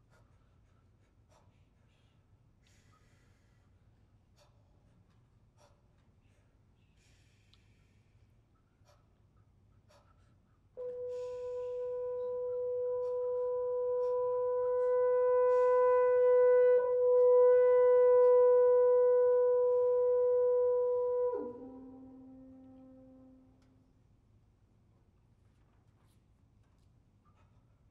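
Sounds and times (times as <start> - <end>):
french horn long note: 10.8 - 23.9.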